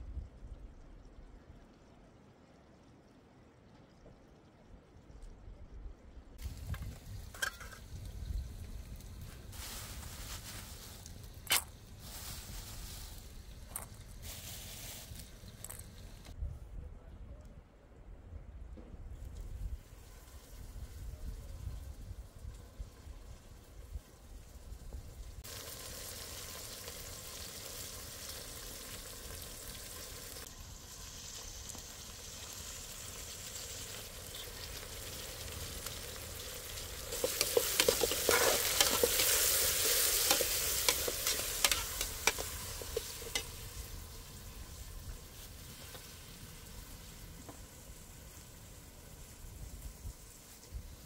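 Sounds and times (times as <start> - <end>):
food sizzling in oil: 6.4 - 16.3, 25.4 - 51.0
oil spitting and popping: 36.7 - 43.7.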